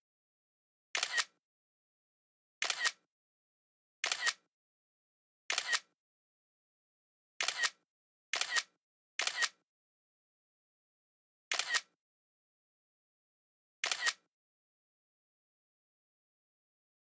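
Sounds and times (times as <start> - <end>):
camera shutter double click: 1.0 - 1.4, 2.6 - 3.0, 4.0 - 4.5, 5.5 - 5.9, 7.4 - 7.8, 8.4 - 9.6, 11.5 - 12.0, 13.8 - 14.3.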